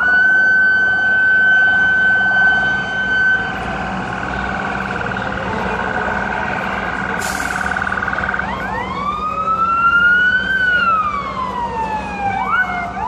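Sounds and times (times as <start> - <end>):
emergency vehicle siren: 0.0 - 13.0.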